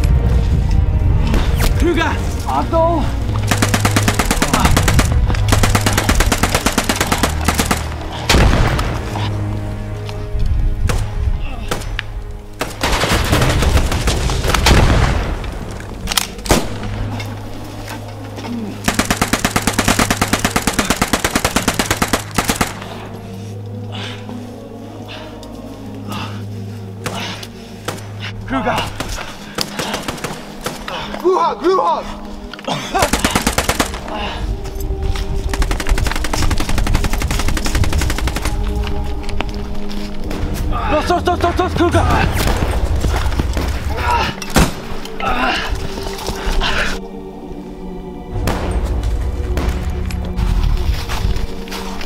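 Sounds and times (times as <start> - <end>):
low music drone: 0.0 - 52.0
gunfire: 3.4 - 9.1, 18.9 - 23.0, 33.0 - 34.1.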